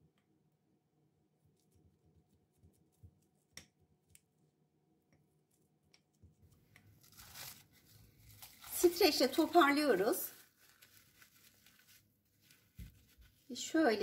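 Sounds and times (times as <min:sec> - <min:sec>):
cling film rustling: 0:06.8 - 0:13.6.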